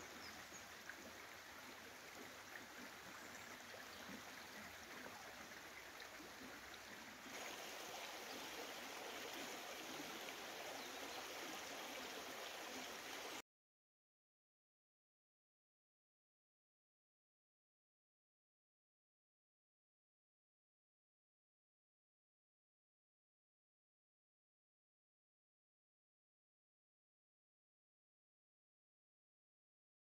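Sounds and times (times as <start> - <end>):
river running over stones: 0.0 - 13.4.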